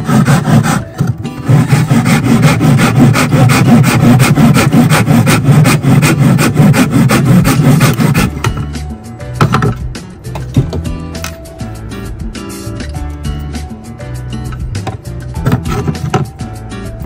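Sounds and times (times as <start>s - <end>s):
steel blade scraping wood: 0.0s - 8.4s, 15.4s - 16.3s.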